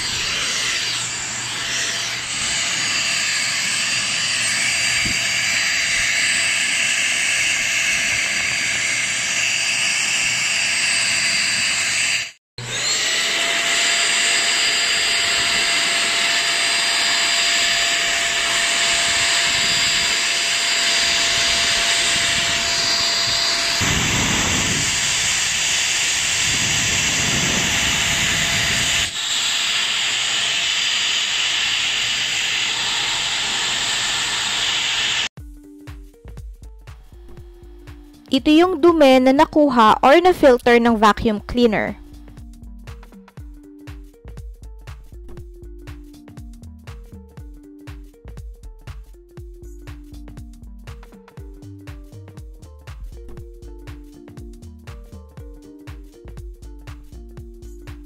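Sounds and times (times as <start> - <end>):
handheld vacuum cleaner running: 0.0 - 35.4.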